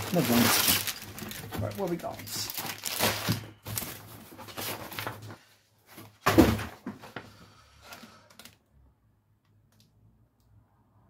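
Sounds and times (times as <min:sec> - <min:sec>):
plastic and paper rustling: 0:00.0 - 0:08.6.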